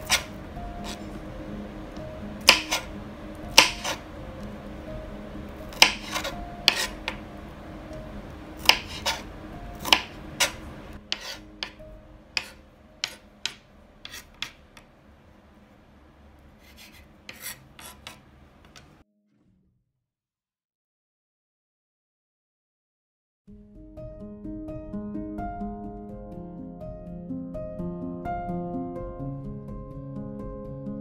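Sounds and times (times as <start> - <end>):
knife chopping on cutting board: 0.0 - 1.1, 2.4 - 2.9, 3.5 - 4.0, 5.7 - 7.2, 8.6 - 11.8, 12.4 - 14.9, 16.6 - 18.9.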